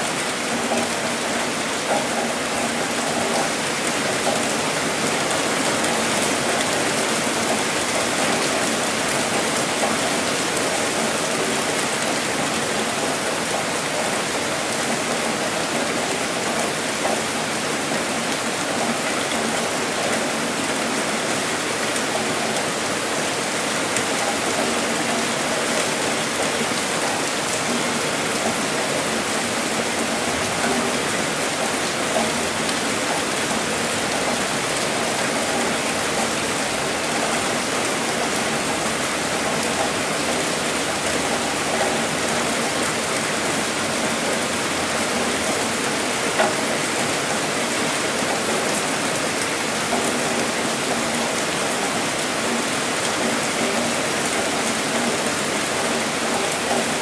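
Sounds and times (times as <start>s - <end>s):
steady rainfall: 0.0s - 57.0s.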